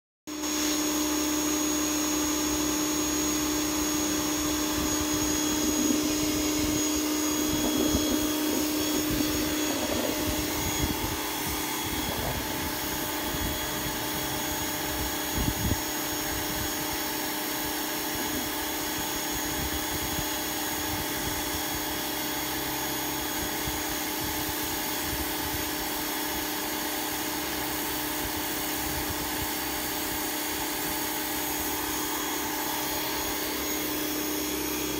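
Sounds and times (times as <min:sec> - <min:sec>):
motor hum: 0:00.3 - 0:34.9
pressure washer spraying wood: 0:00.3 - 0:34.9.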